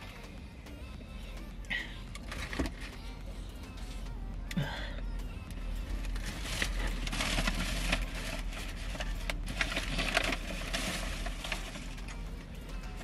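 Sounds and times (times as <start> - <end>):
paper bag crinkling: 6.2 - 12.0.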